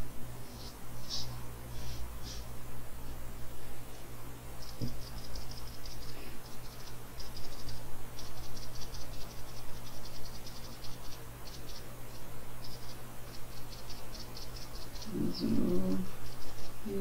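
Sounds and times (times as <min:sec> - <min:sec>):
faint low hum: 0:00.0 - 0:17.0
rapid high-pitched chirping: 0:04.6 - 0:17.0.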